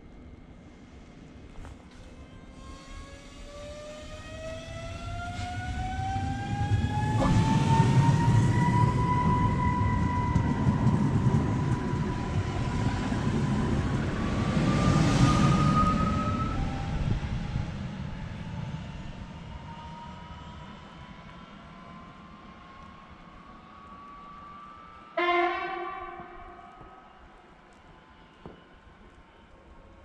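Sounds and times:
train wheels rumbling on rails: 1.5s - 23.2s.

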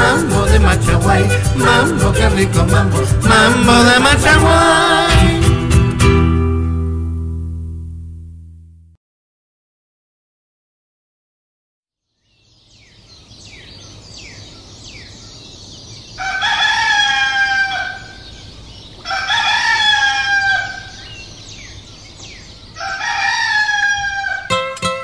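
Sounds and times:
small birds chirping: 12.0s - 24.2s
rooster crowing: 16.2s - 21.9s, 22.7s - 24.8s.

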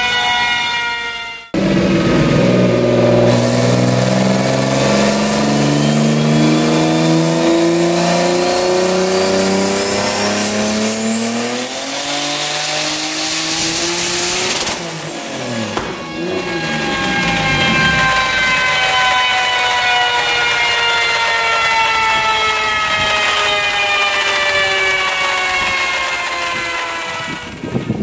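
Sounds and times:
high turbo whine: 1.5s - 28.0s
car engine revving on a dyno: 1.6s - 20.9s.

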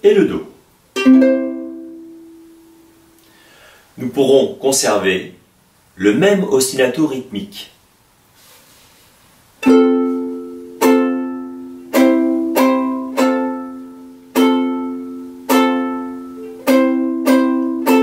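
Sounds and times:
ukulele strumming: 0.9s - 3.2s, 9.6s - 18.0s.

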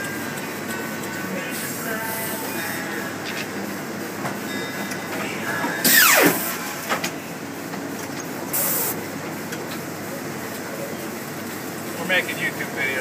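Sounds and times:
machine hum: 5.2s - 9.2s
paper cutter hissing rush: 5.8s - 6.6s, 8.5s - 9.0s.

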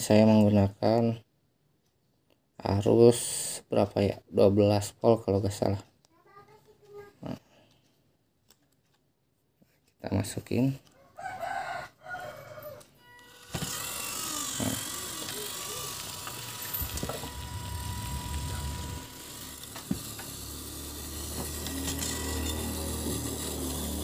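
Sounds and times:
small motors whirring: 12.5s - 24.0s.

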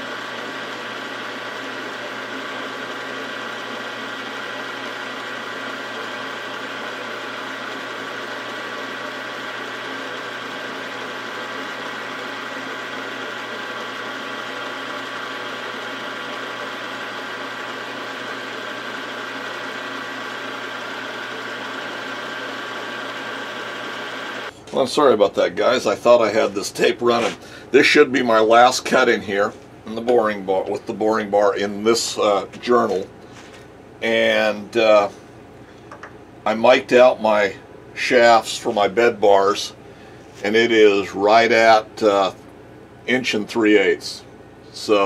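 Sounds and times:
milling machine humming and whining: 0.0s - 25.0s.

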